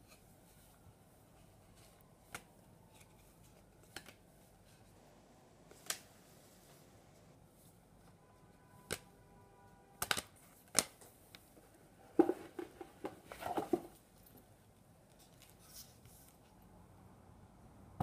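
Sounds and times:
cards and paper handled on table: 0.0s - 5.0s, 14.7s - 16.6s.

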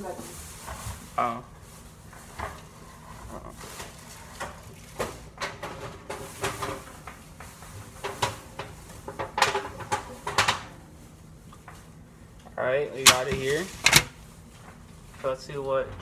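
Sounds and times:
metal baking tray clattering: 8.0s - 10.7s.

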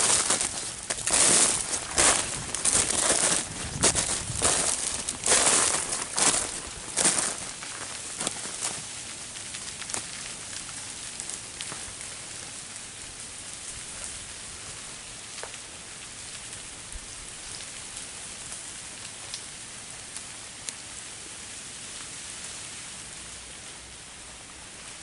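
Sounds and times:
ice ticking on branches: 0.0s - 14.2s
freezing rain hissing: 0.0s - 25.0s.

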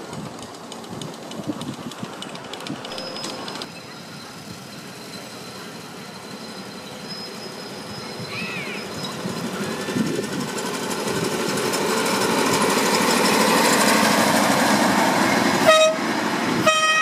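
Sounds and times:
miniature train rumbling past: 0.0s - 17.0s
train horn toots: 15.6s - 16.0s, 16.6s - 17.0s.

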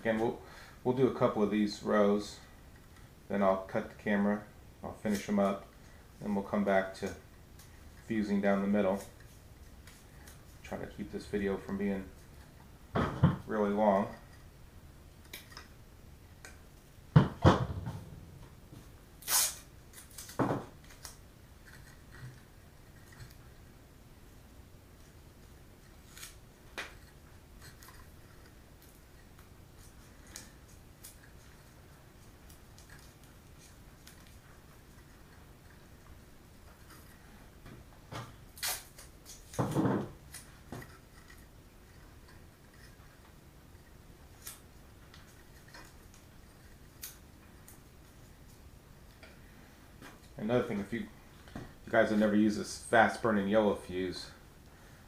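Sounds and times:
tape rustling: 18.7s - 23.8s, 25.0s - 49.3s.

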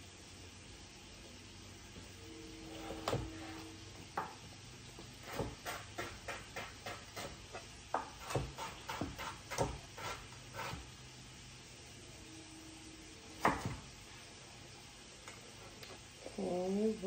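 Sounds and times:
knife chopping on cutting board: 5.2s - 10.9s.

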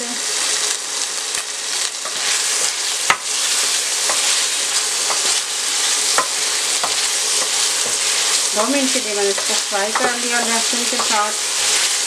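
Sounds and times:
liver sizzling in oil: 0.0s - 12.0s
wooden spoon knocking pan: 5.0s - 5.4s, 6.1s - 11.4s.

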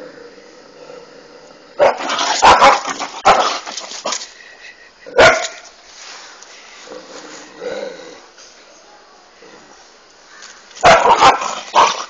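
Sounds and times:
dog barking: 1.8s - 3.6s, 5.2s - 5.6s, 10.8s - 12.0s.

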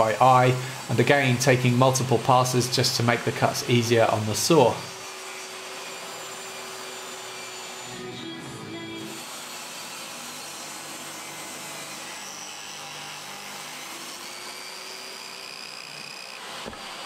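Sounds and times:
table saw cutting wood: 0.0s - 17.0s.

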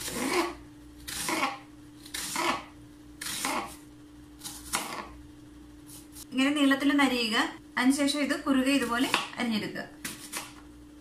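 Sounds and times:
knife slicing gourd: 0.0s - 3.8s, 4.4s - 5.2s, 10.0s - 10.6s.

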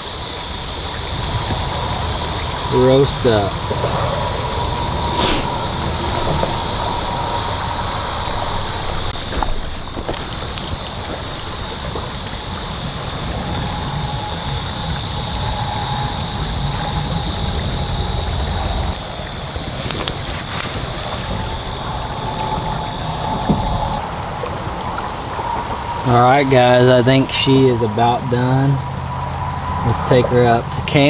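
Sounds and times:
campfire crackling: 0.0s - 30.0s
wind buffeting microphone: 0.0s - 31.0s.

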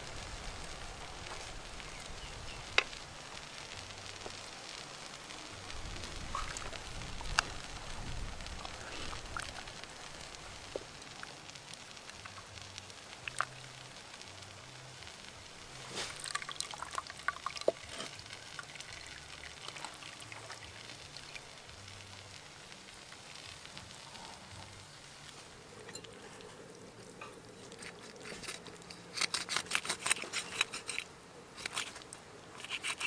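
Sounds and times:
water pouring into pot: 15.6s - 21.8s
water splashing in a pot: 15.7s - 21.7s.

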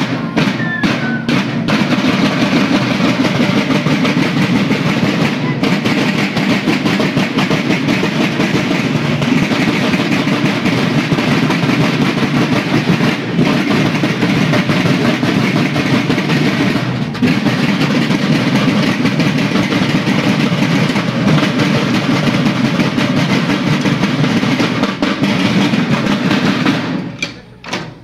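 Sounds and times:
marching snare drums: 0.0s - 28.0s.

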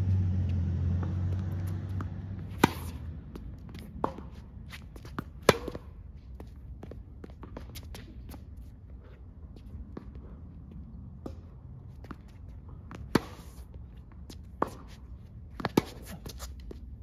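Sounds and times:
footsteps shuffling on court: 0.0s - 10.9s, 11.8s - 17.0s
tennis ball bouncing: 0.1s - 8.6s, 11.1s - 17.0s
tennis racket hitting ball: 0.4s - 6.0s, 12.8s - 13.7s, 14.4s - 16.5s
distant tennis ball hits: 0.8s - 4.4s, 5.0s - 5.9s.

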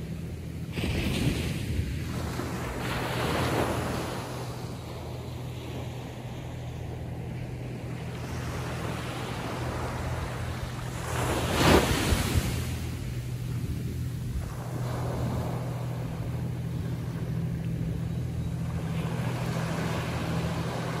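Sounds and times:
waves washing on shore: 0.0s - 21.0s
wave crashing: 8.7s - 13.7s.

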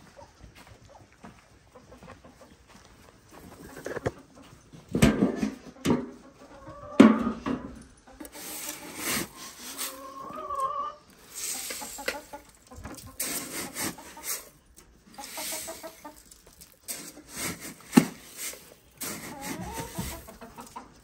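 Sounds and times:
chickens clucking: 0.0s - 21.0s
metal scoop scraping grain: 8.2s - 20.8s.

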